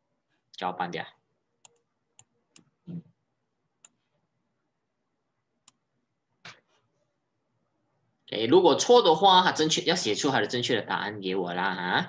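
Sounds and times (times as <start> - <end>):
computer mouse clicks: 1.6 - 3.0, 3.8 - 4.0.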